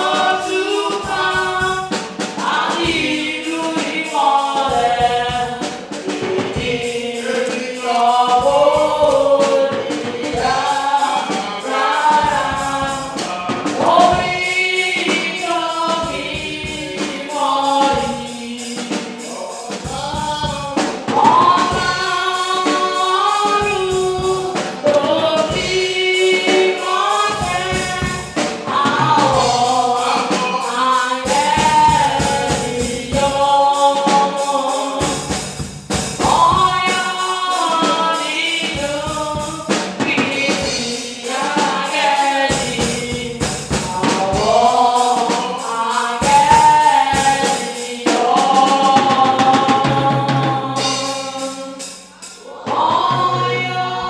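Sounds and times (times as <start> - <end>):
choir and congregation singing: 0.0 - 54.0
percussion beating: 0.0 - 54.0.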